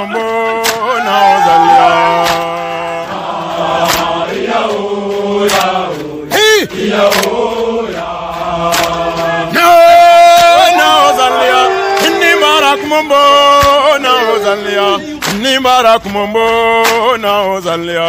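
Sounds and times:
men chanting together: 0.0 - 18.0
sharp percussive hits: 6.7 - 7.6.

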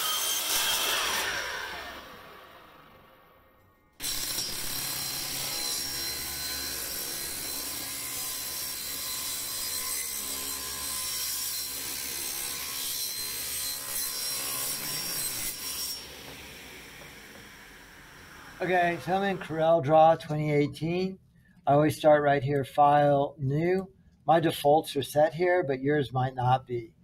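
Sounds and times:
table saw cutting wood: 0.0 - 3.0, 4.0 - 19.8.

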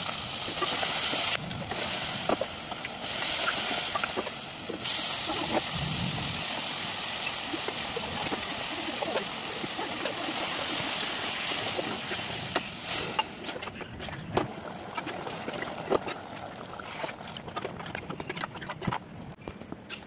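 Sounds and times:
meat sizzling in a pot: 0.0 - 13.4.

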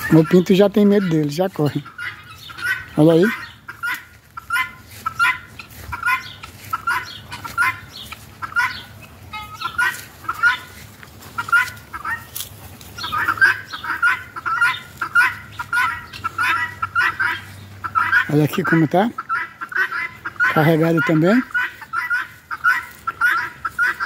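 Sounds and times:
guineafowl calling: 0.0 - 24.0.

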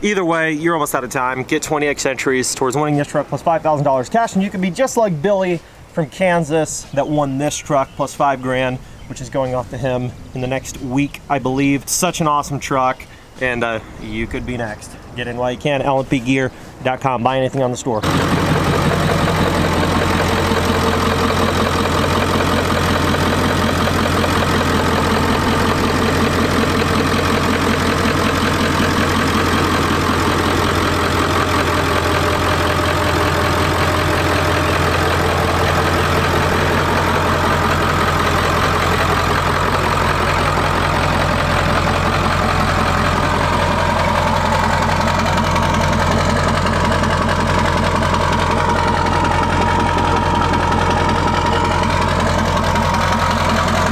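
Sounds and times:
diesel engine idling: 18.0 - 53.9.

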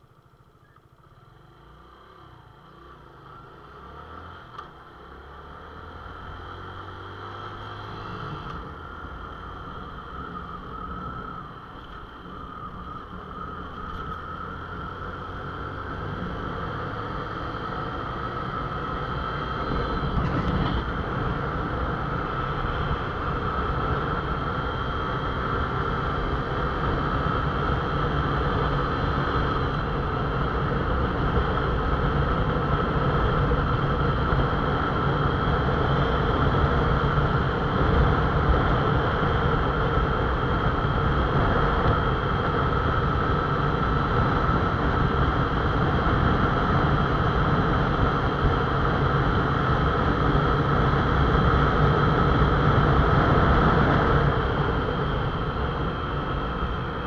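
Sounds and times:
road noise: 0.0 - 57.0
motorcycle engine cruising: 0.1 - 57.0
wind noise: 19.8 - 57.0.

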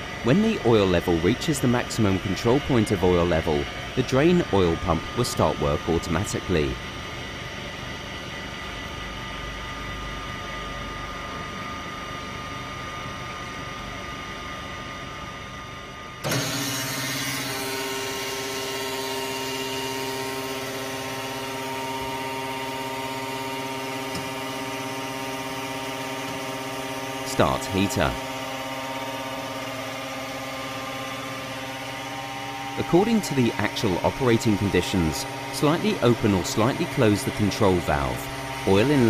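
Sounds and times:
oil purifier machine humming: 0.0 - 39.0
pump motor humming: 16.2 - 39.0.

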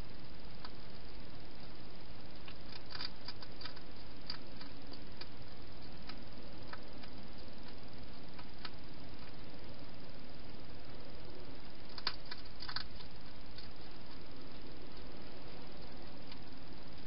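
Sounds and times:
steady hiss: 0.0 - 17.0
hedgehog crunching dry food: 2.4 - 9.4, 11.8 - 17.0.

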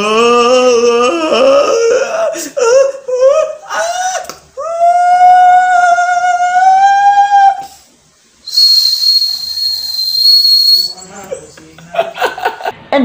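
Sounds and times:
high whistled tone: 8.4 - 11.2.

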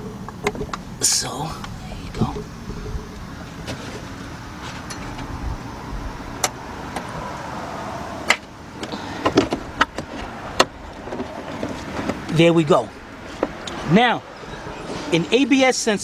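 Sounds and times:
steady background noise: 0.0 - 16.0.

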